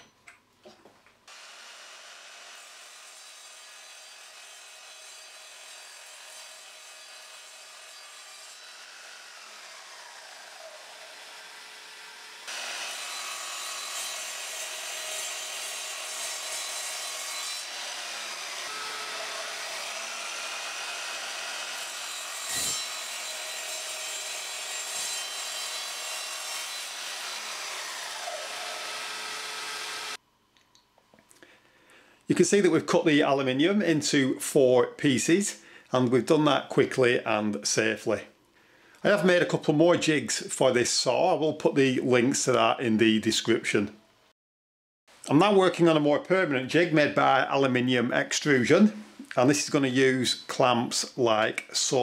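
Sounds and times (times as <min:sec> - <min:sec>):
mitre saw cutting metal: 0:01.3 - 0:30.2.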